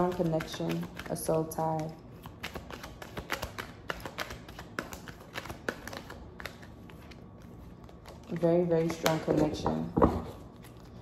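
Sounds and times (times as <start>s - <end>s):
cards being shuffled: 0.0s - 11.0s.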